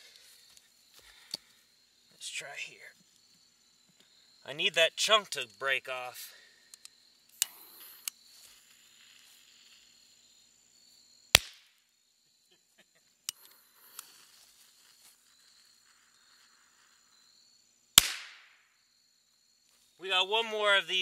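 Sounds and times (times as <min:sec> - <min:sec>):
firecracker bang: 0:18.0 - 0:18.6.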